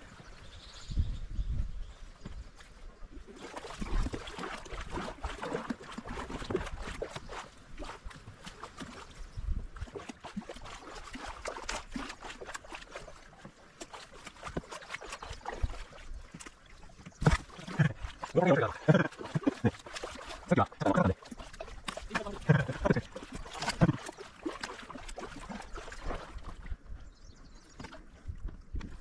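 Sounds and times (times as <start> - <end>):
paddles splashing in water: 2.0 - 29.0.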